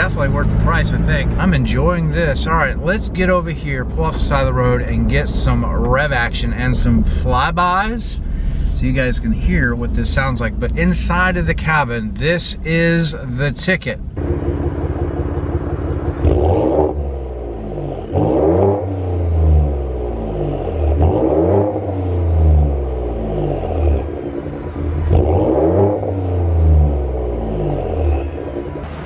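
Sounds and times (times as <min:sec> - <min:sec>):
truck engine revving: 0:14.2 - 0:29.0.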